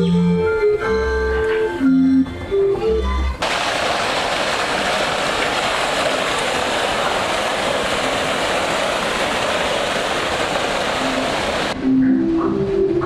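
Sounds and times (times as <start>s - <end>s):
steady rushing noise: 3.4s - 11.9s.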